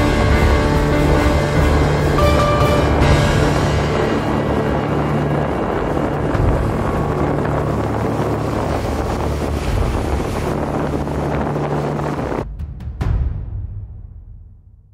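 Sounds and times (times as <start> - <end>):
rough sea: 0.0 - 13.2
wind: 0.0 - 13.6.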